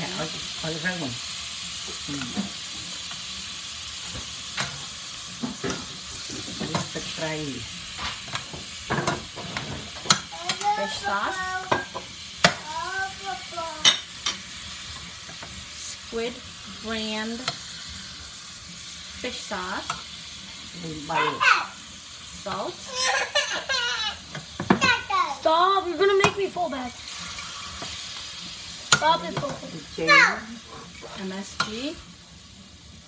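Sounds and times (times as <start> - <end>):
meat sizzling in oil: 0.0 - 33.0
spatula scraping and tapping pan: 8.0 - 10.7, 17.3 - 17.7, 30.8 - 31.9.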